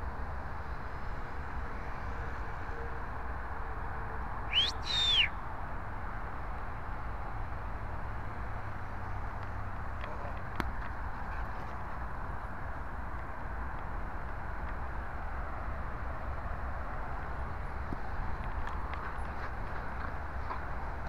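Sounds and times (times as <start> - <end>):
two-part sliding whistle: 4.5 - 5.4.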